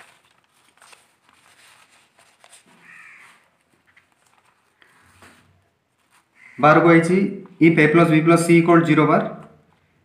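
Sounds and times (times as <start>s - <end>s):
paper rustling: 0.0s - 6.6s
crow cawing faintly: 2.7s - 3.7s, 6.3s - 6.8s.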